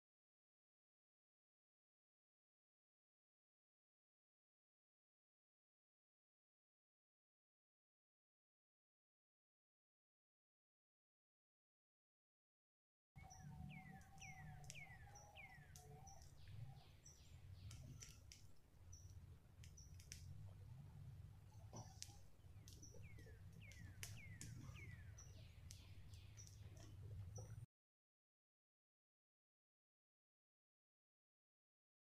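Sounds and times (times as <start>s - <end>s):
soft clicks: 13.8s - 20.6s, 21.5s - 27.7s.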